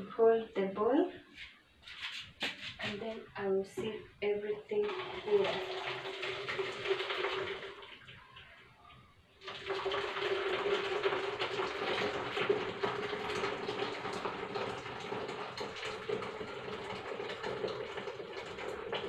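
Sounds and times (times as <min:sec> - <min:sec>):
liquid pouring into a jug: 0:04.7 - 0:19.0.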